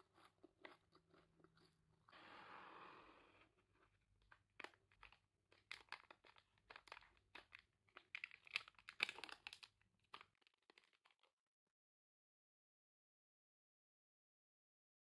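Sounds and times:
plastic wrapper crinkling: 4.3s - 11.3s
wrapper tearing open: 4.6s - 11.3s.

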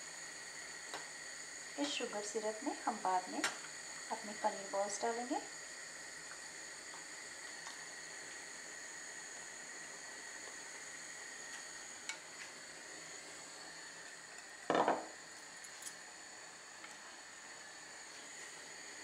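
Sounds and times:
syrup boiling: 0.0s - 19.0s
bowl set down on counter: 14.7s - 15.1s.

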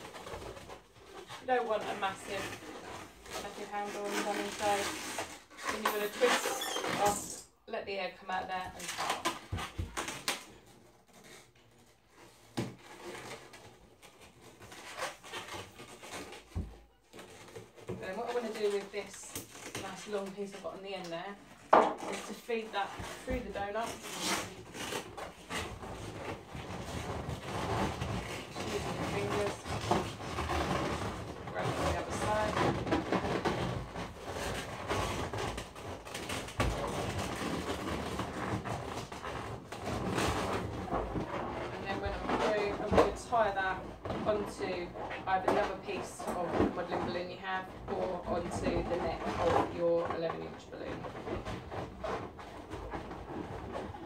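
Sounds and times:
balloon rubbing and squeaking: 0.0s - 54.0s.

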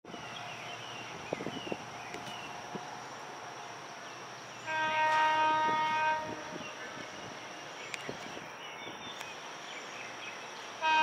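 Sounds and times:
train horn blast: 4.7s - 7.0s, 10.8s - 11.0s.

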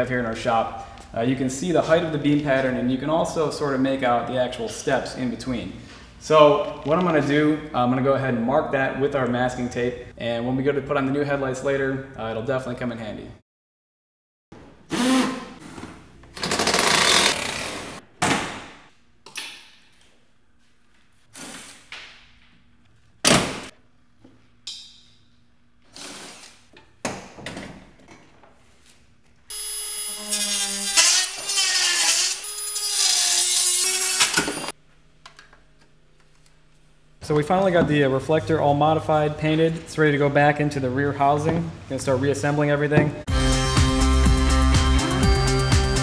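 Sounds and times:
small power tool cutting plastic: 14.9s - 15.5s, 16.4s - 17.6s, 29.5s - 34.7s.

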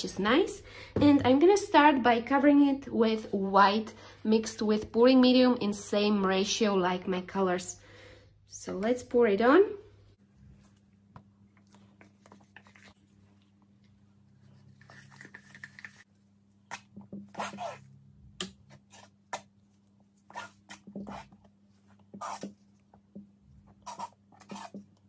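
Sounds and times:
spatula scraping paint on canvas: 20.2s - 22.7s, 23.7s - 25.0s.

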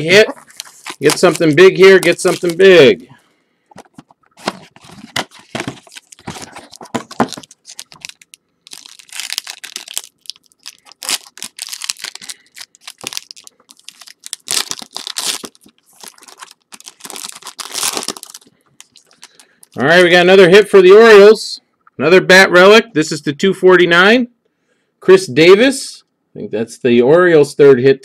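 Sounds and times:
card pack tearing: 0.0s - 2.9s, 3.8s - 19.8s
wrapper crinkling: 0.0s - 3.0s, 3.8s - 19.8s.

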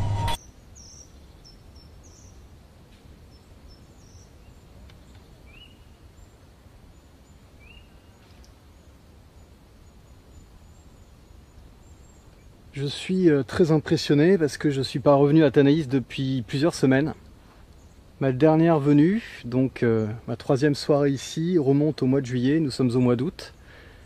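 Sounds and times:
faint bird chirps: 0.3s - 2.5s, 3.2s - 13.6s.

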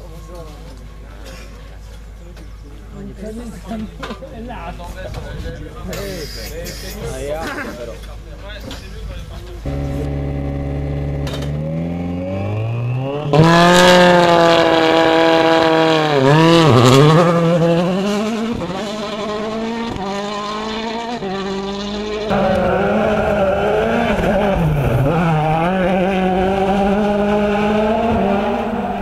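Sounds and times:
rally car engine at high revs: 9.6s - 29.0s.

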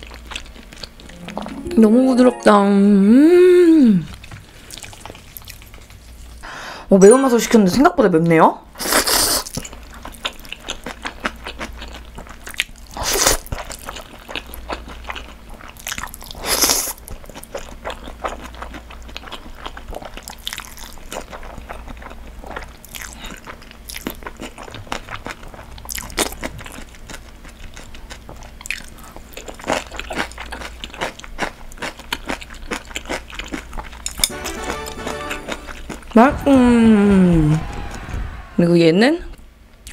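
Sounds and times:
chewing with wet mouth clicks: 9.5s - 16.4s, 17.0s - 34.2s.

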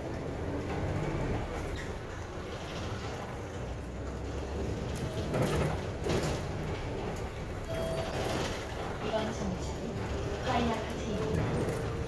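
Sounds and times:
bus engine hum: 0.0s - 12.0s
road noise: 0.0s - 12.0s
clatter: 0.5s - 9.5s.

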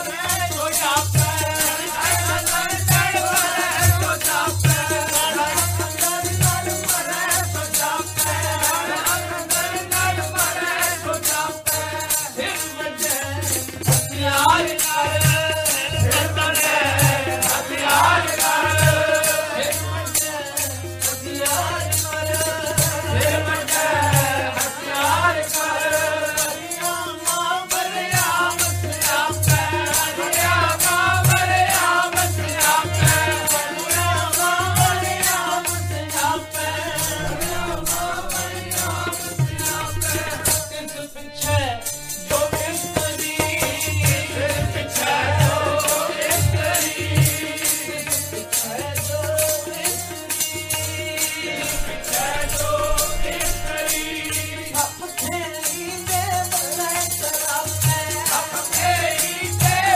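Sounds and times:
man singing a hymn: 0.0s - 59.9s
rhythmic rattle: 0.0s - 59.9s
low drum strokes: 36.8s - 42.3s.

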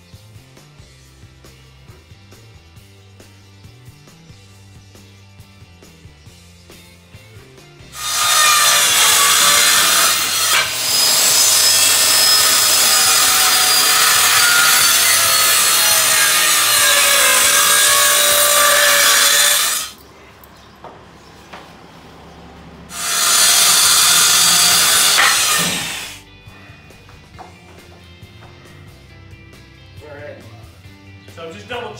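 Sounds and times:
electric power saw cutting wood: 7.9s - 20.0s, 22.9s - 26.2s.

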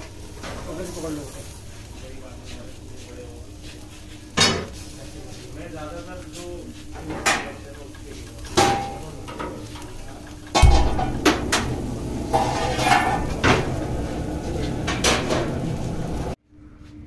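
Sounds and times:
steady noisy background: 0.0s - 17.0s
metal utensils clinking: 7.0s - 16.2s.

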